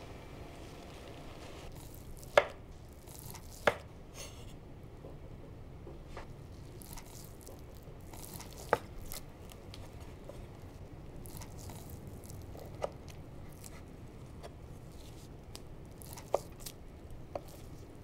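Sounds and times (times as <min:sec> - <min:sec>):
knife slicing crunchy skin: 0:01.7 - 0:04.3, 0:11.2 - 0:13.8, 0:15.0 - 0:16.8.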